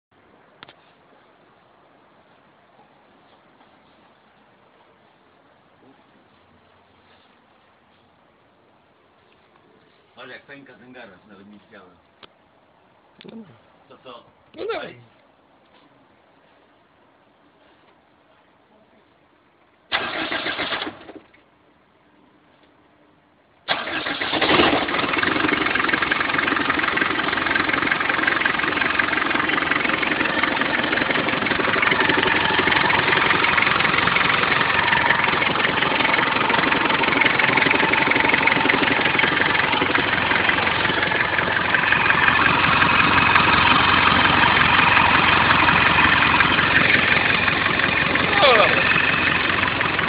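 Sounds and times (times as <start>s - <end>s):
diesel engine starting and idling: 19.9s - 21.5s, 23.6s - 50.0s.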